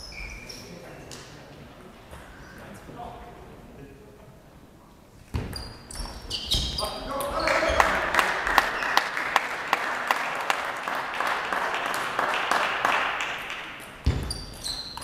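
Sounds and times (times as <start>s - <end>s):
spectators applauding: 7.4s - 13.8s.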